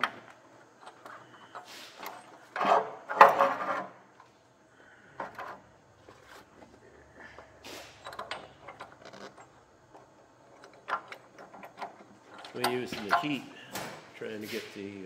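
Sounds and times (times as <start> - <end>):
steel knocks and scrapes: 1.2 - 4.0.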